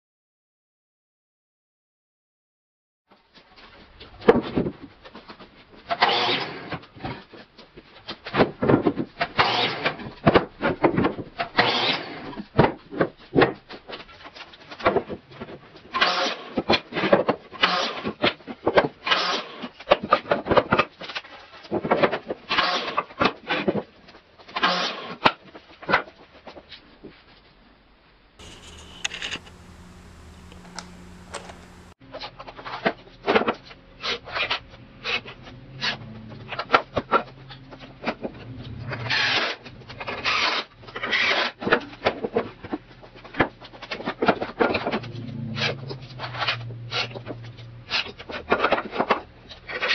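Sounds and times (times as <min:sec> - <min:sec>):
miter saw cutting wood: 0:28.4 - 0:32.0.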